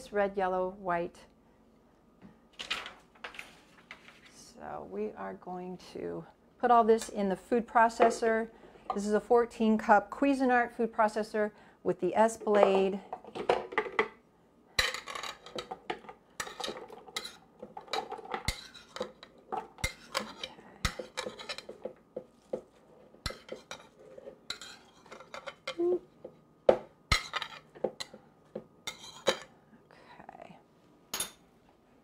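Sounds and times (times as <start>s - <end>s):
spoon scraping and tapping a plate: 14.9s - 25.8s.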